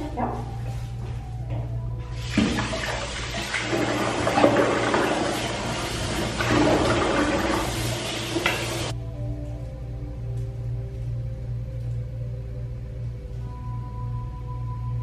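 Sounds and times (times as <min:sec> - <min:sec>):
water running hard: 0:02.2 - 0:08.9.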